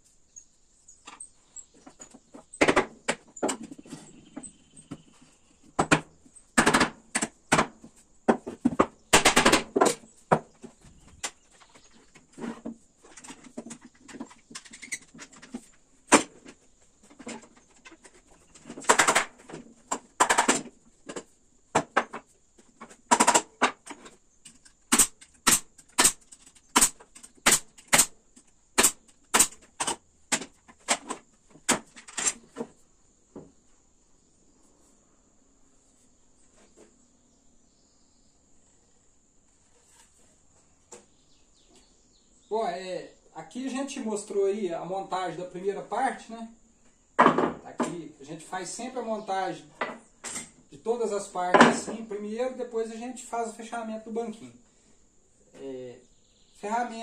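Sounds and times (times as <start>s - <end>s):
wooden parts knocking and clattering: 1.0s - 33.6s, 47.2s - 48.0s, 48.8s - 50.7s, 51.3s - 52.2s
pneumatic pin nailer shots: 9.1s - 9.9s, 24.9s - 28.2s, 28.8s - 31.0s.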